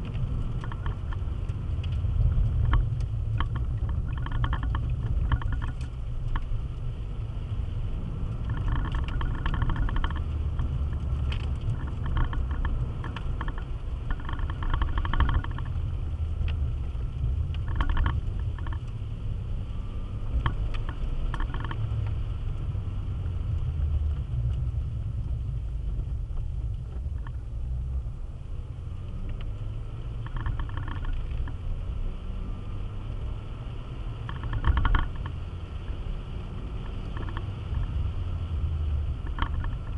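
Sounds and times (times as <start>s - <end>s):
car engine and tyres rumbling: 0.0s - 39.9s.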